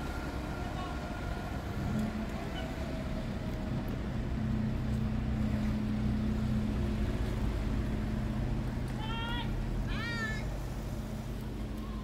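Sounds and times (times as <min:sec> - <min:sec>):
bus engine humming: 0:00.0 - 0:12.0.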